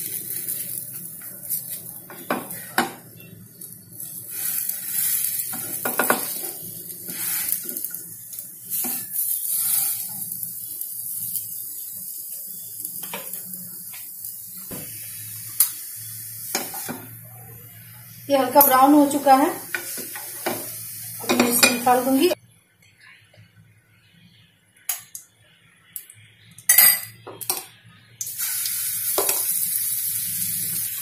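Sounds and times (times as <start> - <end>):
batter sizzling in oil: 0.0 - 22.4, 28.2 - 31.0
spatula scraping and tapping pan: 5.0 - 8.0, 19.7 - 22.0.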